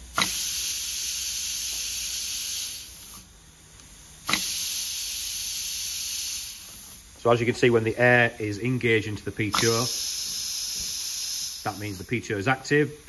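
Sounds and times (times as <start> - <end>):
compressed air hissing: 0.0 - 3.3, 4.2 - 7.4, 8.3 - 12.6
sharp click: 4.3 - 4.5, 9.5 - 10.0.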